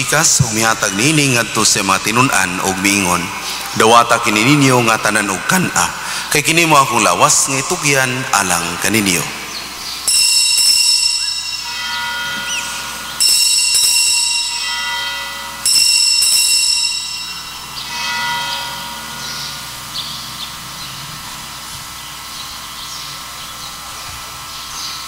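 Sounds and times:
altar bells ringing: 0.0s - 25.0s.

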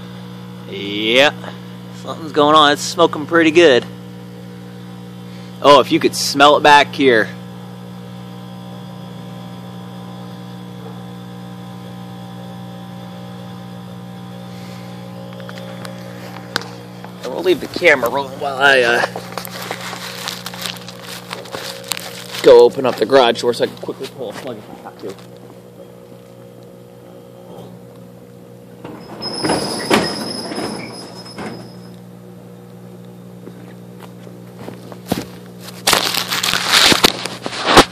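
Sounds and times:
microwave oven humming: 0.0s - 37.9s
garage door squealing and rattling: 28.8s - 32.0s.

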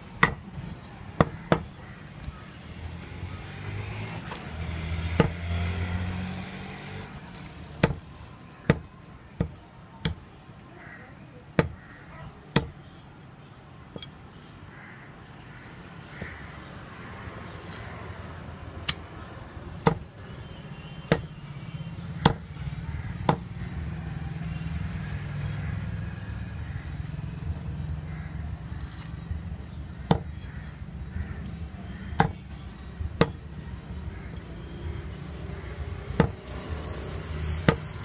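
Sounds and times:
knife chopping on wooden block: 5.2s - 5.4s, 7.8s - 8.0s, 22.2s - 22.5s, 30.0s - 30.6s, 32.1s - 32.4s.

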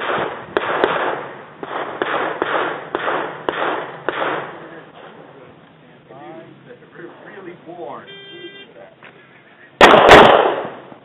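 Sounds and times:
pistol gunshots echoing: 0.0s - 4.7s, 9.8s - 10.9s.

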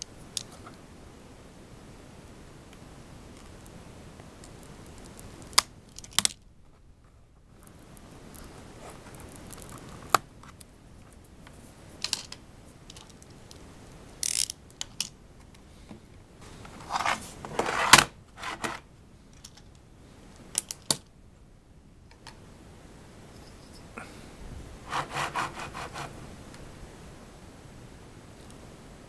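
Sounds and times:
plastic keyboard being handled: 16.6s - 18.8s.

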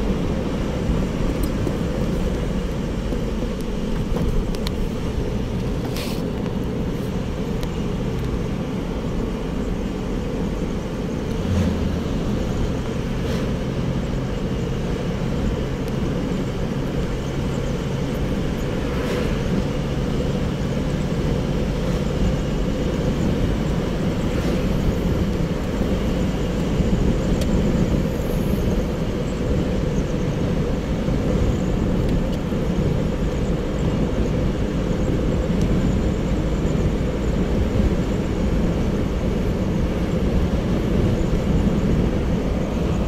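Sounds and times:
car engine and road noise: 0.0s - 43.0s.

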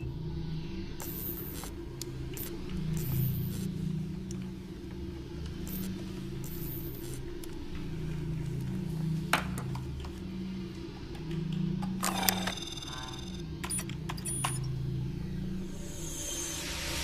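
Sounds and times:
low electronic hum: 0.0s - 17.0s.

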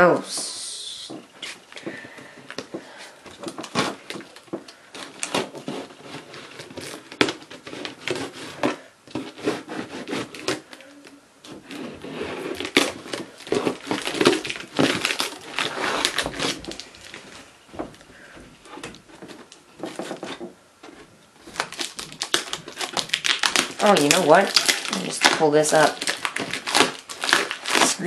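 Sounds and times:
fingernails scratching packing tape: 5.0s - 16.8s, 21.5s - 28.0s.

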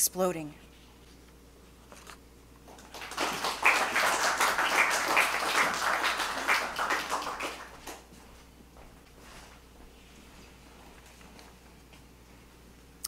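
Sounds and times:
audience applauding: 2.7s - 8.1s.

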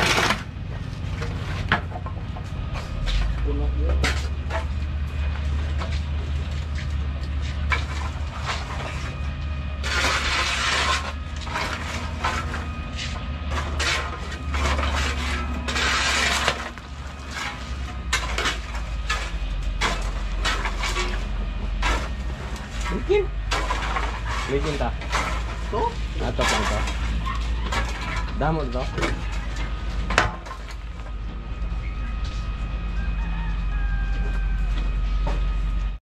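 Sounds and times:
steady low hum: 0.0s - 36.0s
shovel scraping rustle: 5.4s - 30.8s.

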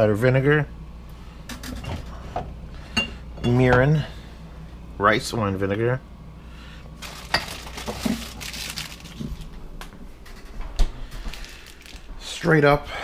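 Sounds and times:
bottles and jars clinking: 7.0s - 8.6s.

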